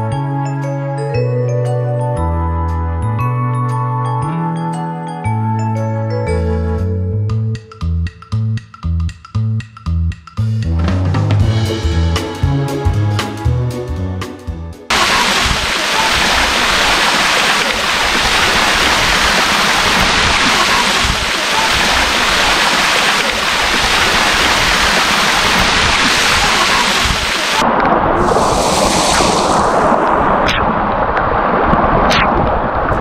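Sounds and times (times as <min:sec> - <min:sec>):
spray splashing: 0:14.9 - 0:27.6, 0:28.2 - 0:30.0
waterfall rushing into pool: 0:14.9 - 0:33.0.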